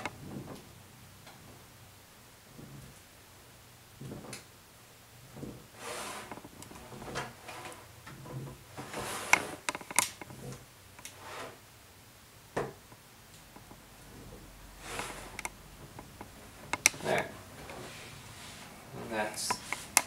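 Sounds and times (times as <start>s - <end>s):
putty knife scraping: 8.8s - 9.7s.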